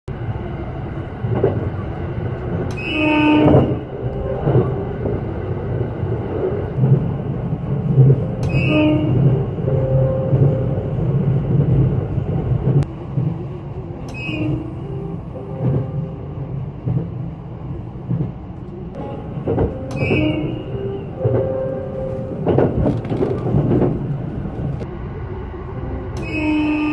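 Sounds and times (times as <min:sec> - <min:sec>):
train running low rumble: 0:00.1 - 0:26.9
train horn blasts: 0:02.7 - 0:04.9, 0:08.2 - 0:10.8, 0:14.0 - 0:16.4, 0:19.0 - 0:22.7, 0:25.8 - 0:26.9.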